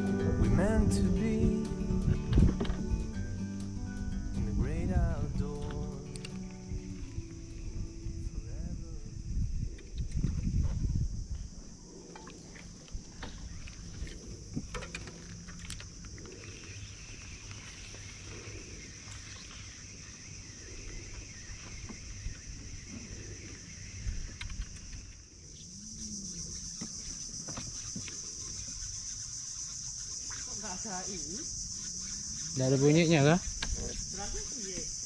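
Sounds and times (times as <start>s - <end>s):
wind rumble on microphone: 0.0s - 16.8s, 20.7s - 25.2s
insect drone: 0.0s - 35.0s.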